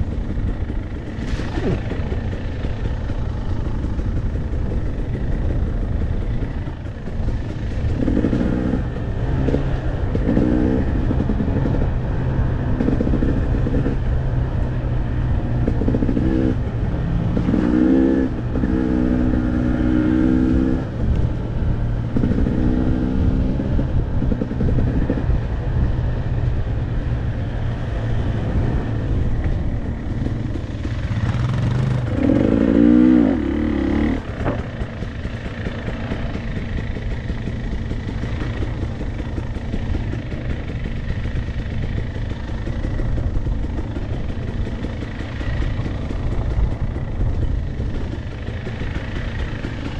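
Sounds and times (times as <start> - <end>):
dirt bike engine revving: 7.3 - 14.1, 15.6 - 20.9, 27.8 - 43.5.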